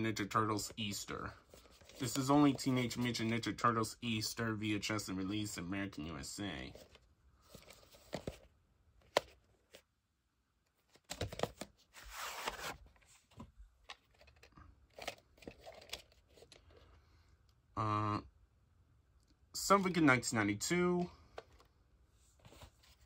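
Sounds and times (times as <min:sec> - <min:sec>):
cassette scraping in cardboard sleeve: 0:11.3 - 0:12.9.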